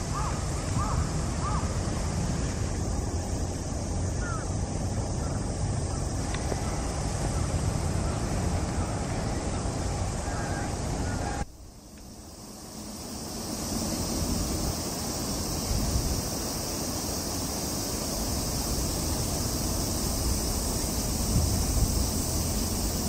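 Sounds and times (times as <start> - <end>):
high-pitched hiss: 0.0 - 23.0
wind rumble on microphone: 13.6 - 23.0.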